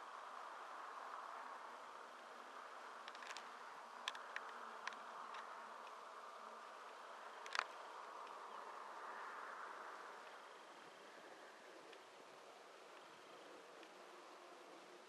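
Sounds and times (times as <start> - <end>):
light clicks: 3.0 - 6.0, 7.4 - 8.4.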